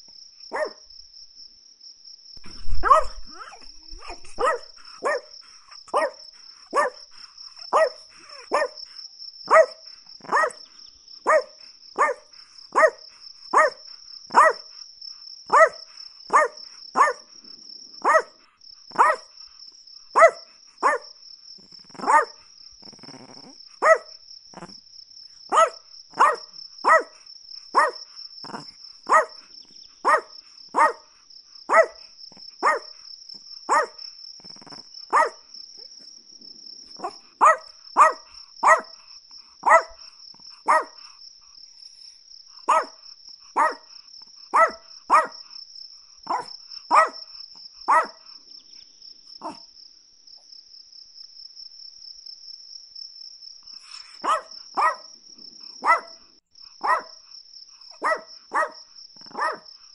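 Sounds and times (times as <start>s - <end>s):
small dog yapping: 0.5s - 0.8s, 2.4s - 7.0s, 7.6s - 8.8s, 9.5s - 10.6s, 11.3s - 12.2s, 12.8s - 14.6s, 15.5s - 17.2s, 18.0s - 18.3s, 18.9s - 19.3s, 20.2s - 21.1s, 21.9s - 24.7s, 25.5s - 27.2s, 27.8s - 29.4s, 30.0s - 31.0s, 31.7s - 32.0s, 32.6s - 32.9s, 33.7s - 34.0s, 34.6s - 35.4s, 37.0s - 38.9s, 39.6s - 40.0s, 40.7s - 41.0s, 42.7s - 43.0s, 43.6s - 43.9s, 44.5s - 45.3s, 46.3s - 47.2s, 47.9s - 48.2s, 49.4s - 49.6s, 53.8s - 55.1s, 55.8s - 56.2s, 56.8s - 57.1s, 58.0s - 59.7s.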